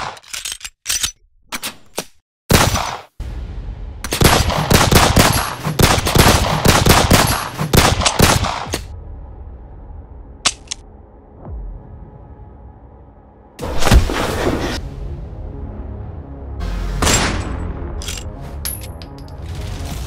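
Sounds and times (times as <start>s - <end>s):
rapid automatic gunfire: 4.2s - 8.7s.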